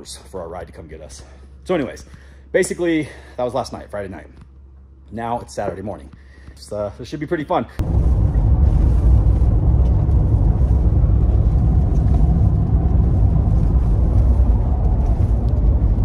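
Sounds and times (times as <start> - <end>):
truck road and engine rumble: 7.8 - 16.0.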